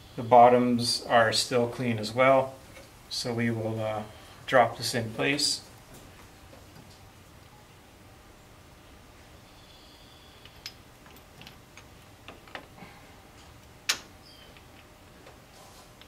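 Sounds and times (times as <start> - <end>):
engine rocker arms clicking: 10.4 - 12.8.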